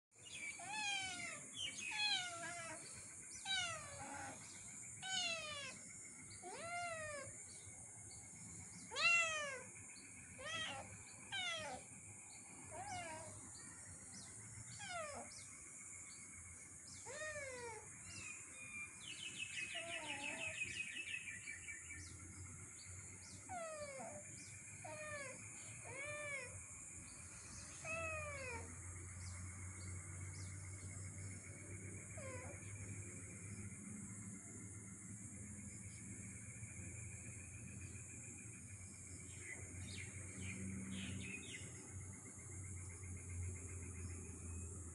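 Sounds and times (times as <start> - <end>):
cats meowing: 0.6 - 7.4, 8.8 - 12.0, 12.6 - 13.5, 14.7 - 15.4, 17.0 - 18.3, 19.6 - 20.7, 23.4 - 26.6, 27.7 - 28.8, 32.2 - 32.6.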